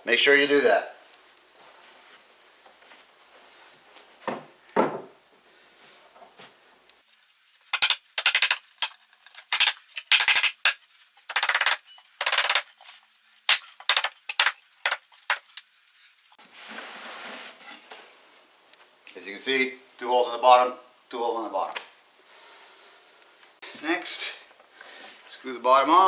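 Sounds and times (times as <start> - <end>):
soft rustling: 1.0 - 4.3
furniture panels knocking and rattling: 4.2 - 5.2.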